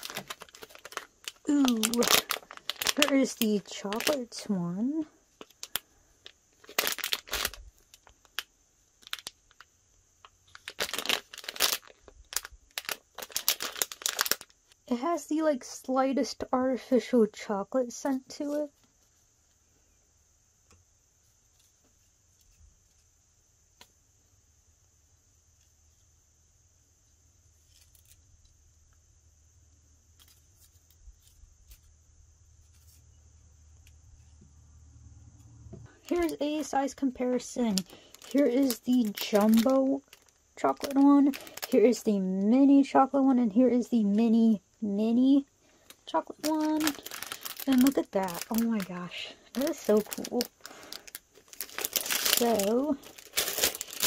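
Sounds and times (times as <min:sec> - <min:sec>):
plastic wrapper crinkling: 0:00.0 - 0:04.5, 0:05.3 - 0:14.8, 0:35.9 - 0:42.4, 0:45.4 - 0:54.0
faint high-pitched whine: 0:00.0 - 0:54.0.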